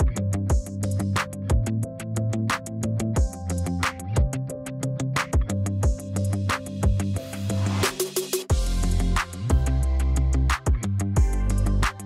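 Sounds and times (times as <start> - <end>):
deep kick drum: 0.0 - 0.8, 1.5 - 1.7, 3.2 - 3.4, 4.2 - 4.4, 5.4 - 6.1, 8.5 - 8.8, 9.5 - 9.8, 10.6 - 12.0
synth bass line: 8.5 - 12.0.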